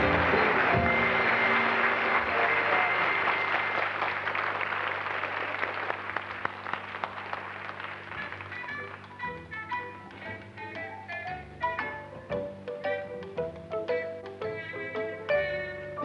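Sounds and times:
plucked string music: 0:00.0 - 0:01.9, 0:08.2 - 0:16.0
audience applauding: 0:00.0 - 0:09.4.

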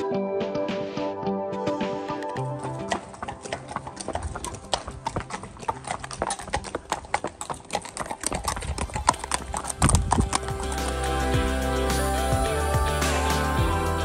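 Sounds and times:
horses' hooves on paved road: 0:02.4 - 0:11.6
low rumble: 0:09.1 - 0:14.0.

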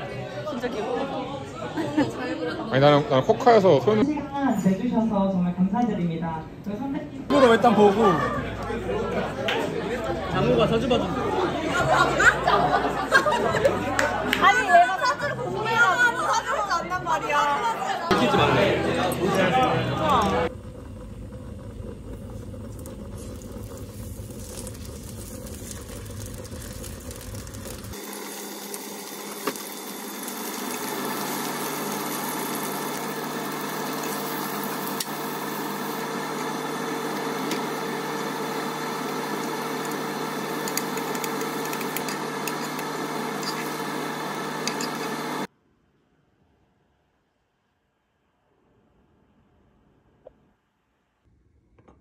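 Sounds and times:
steak sizzling in frying pan: 0:22.5 - 0:45.3.

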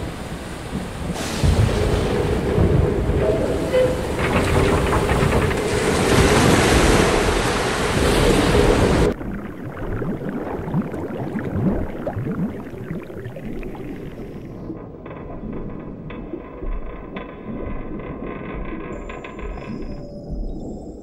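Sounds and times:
wind: 0:00.0 - 0:09.7
waves: 0:00.0 - 0:14.8
muffled underwater gurgles: 0:08.6 - 0:21.0.

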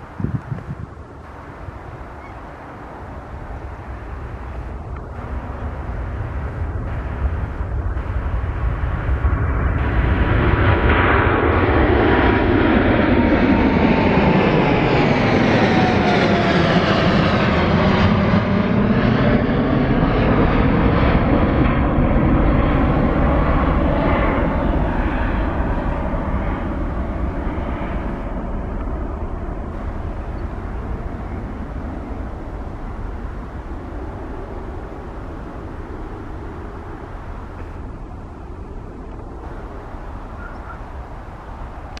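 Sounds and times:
jet airliner engine rumble: 0:00.0 - 0:42.0.

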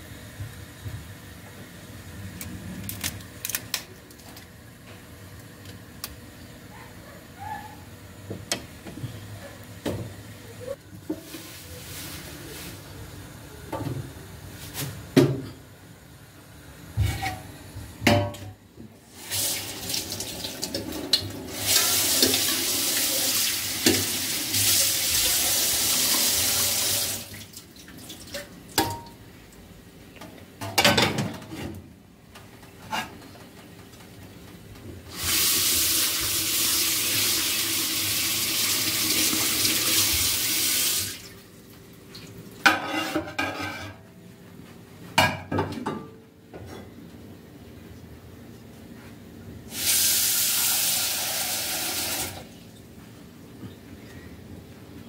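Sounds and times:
kitchenware knocking and clinking: 0:18.0 - 0:18.6.

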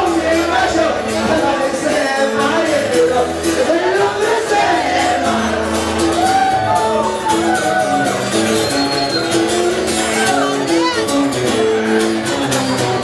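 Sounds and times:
man singing into microphone: 0:00.0 - 0:06.0
strummed guitar: 0:00.0 - 0:13.0.

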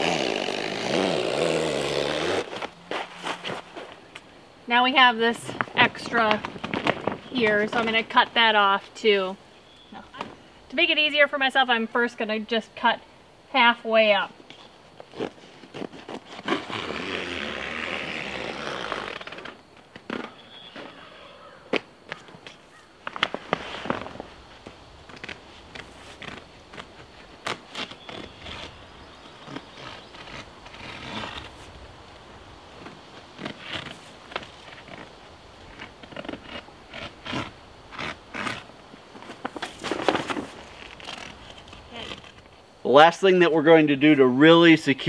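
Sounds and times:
vinyl sheeting being cut by hand: 0:00.0 - 0:03.9, 0:15.1 - 0:19.6, 0:23.1 - 0:24.3, 0:25.1 - 0:31.7, 0:32.8 - 0:35.1, 0:35.7 - 0:42.4.

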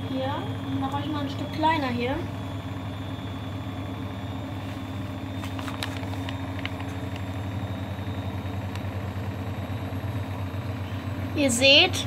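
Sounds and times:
washing machine spinning: 0:00.0 - 0:12.0.

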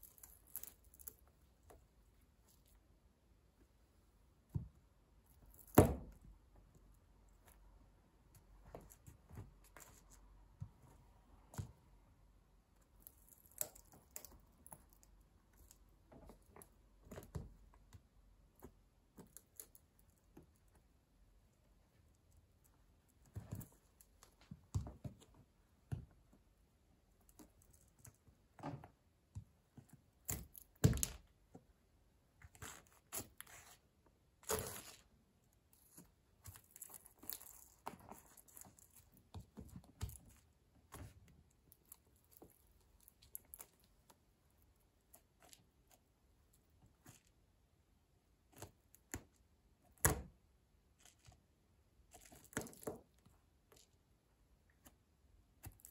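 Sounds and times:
pencil splintering and crackling: 0:00.0 - 0:01.8, 0:12.8 - 0:24.6, 0:29.8 - 0:31.3, 0:32.4 - 0:47.3.

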